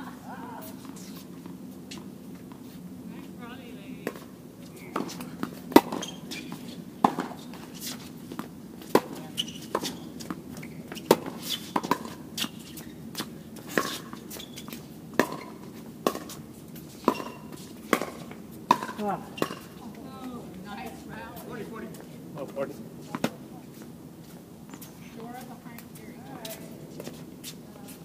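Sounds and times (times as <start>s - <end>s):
racket hitting tennis ball: 4.9s - 16.4s, 17.0s - 19.8s
ball bouncing on court: 15.2s - 15.5s, 17.1s - 19.7s.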